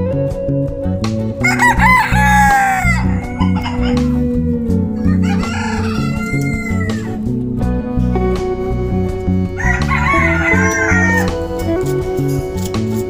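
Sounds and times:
background music with bass and guitar: 0.0s - 13.0s
rooster crowing: 1.4s - 4.2s, 4.9s - 7.3s, 9.5s - 11.5s.

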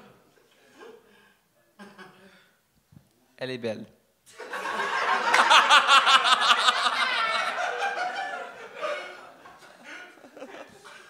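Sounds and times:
crowd laughing: 4.3s - 11.0s.

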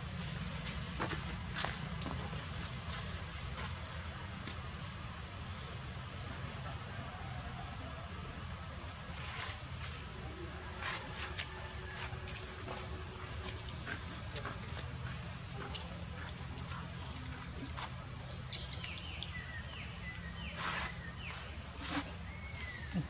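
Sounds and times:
shrill drone of forest insects: 0.0s - 23.0s.

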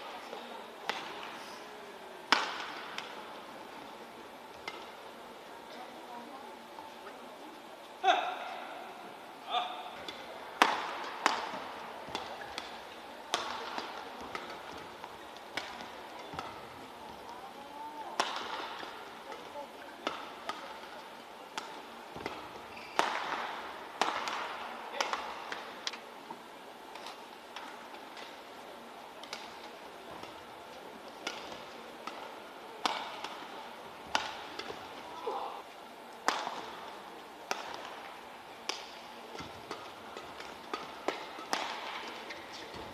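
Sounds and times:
rackets hitting shuttlecock: 0.0s - 1.4s, 2.3s - 5.2s, 9.6s - 42.9s
faint hall noise: 0.0s - 42.9s
shoe squeaking on court: 22.6s - 23.1s.

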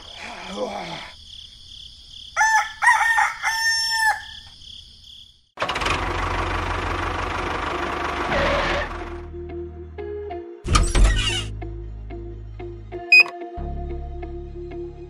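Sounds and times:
rooster crowing: 2.3s - 4.5s.

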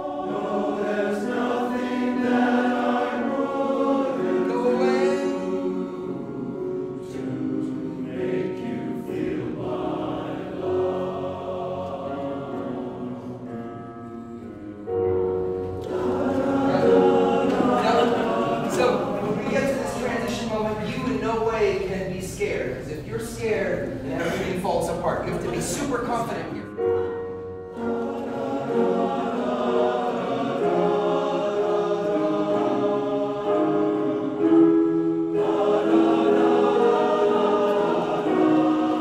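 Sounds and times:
men's chorus singing: 0.0s - 20.6s, 27.7s - 39.0s.

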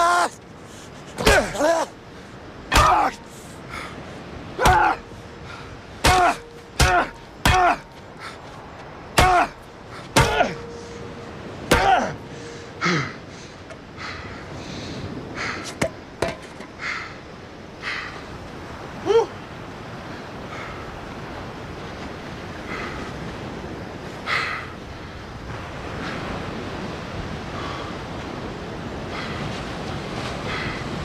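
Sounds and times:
man crying out in pain: 0.0s - 0.4s, 1.2s - 2.0s, 4.6s - 5.1s, 6.0s - 7.9s, 9.2s - 9.6s, 10.2s - 10.7s, 11.7s - 13.2s.

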